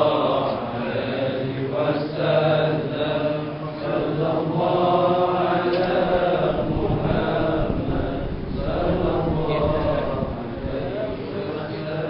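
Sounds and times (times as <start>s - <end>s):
men chanting together: 0.0s - 12.0s.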